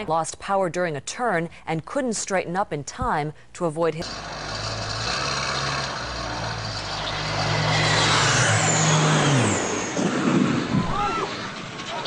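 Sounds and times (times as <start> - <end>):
vehicle engine idling: 4.0 - 7.9
rushing noise with falling whines: 7.4 - 12.0.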